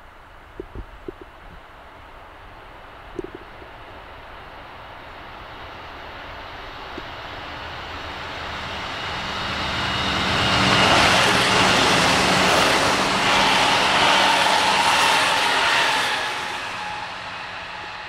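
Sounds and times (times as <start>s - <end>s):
electric train passing: 3.3s - 18.0s.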